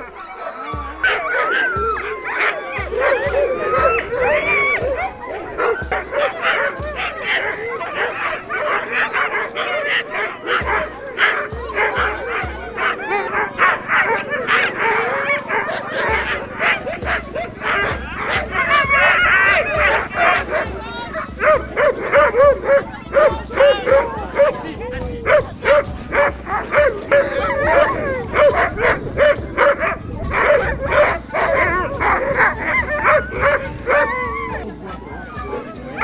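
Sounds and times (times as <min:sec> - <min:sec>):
dogs barking yipping and whining: 0:00.0 - 0:36.0.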